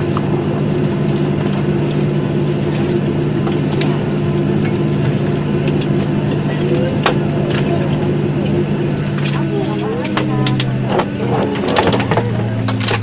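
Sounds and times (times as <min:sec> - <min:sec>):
airplane cabin drone: 0:00.0 - 0:13.0.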